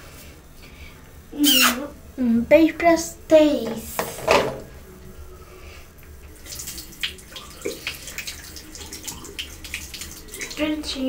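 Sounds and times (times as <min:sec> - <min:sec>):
water splashing into sink: 0:06.4 - 0:11.0.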